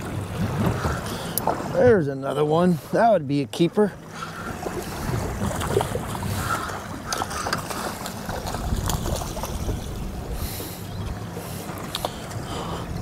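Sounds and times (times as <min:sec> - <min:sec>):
low steady hum: 0:00.0 - 0:13.0
water splashing against boat: 0:00.0 - 0:13.0.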